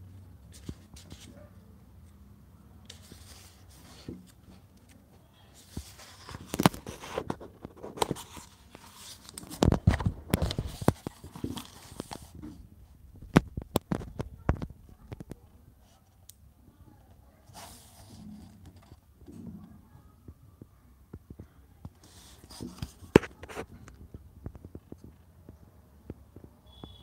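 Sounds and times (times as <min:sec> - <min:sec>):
book pages turning: 0:00.5 - 0:01.4, 0:02.8 - 0:12.6, 0:17.5 - 0:19.0, 0:22.0 - 0:24.1.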